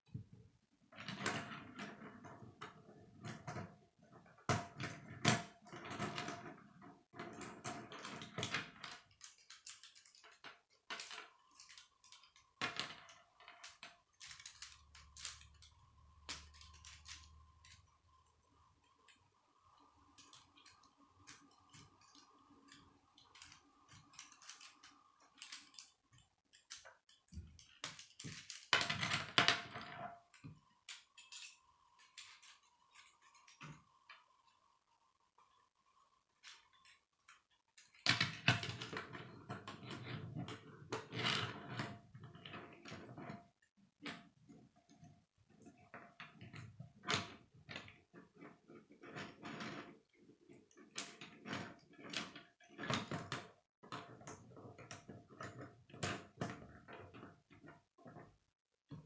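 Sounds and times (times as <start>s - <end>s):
plastic pieces clicking and rattling: 7.2s - 34.4s.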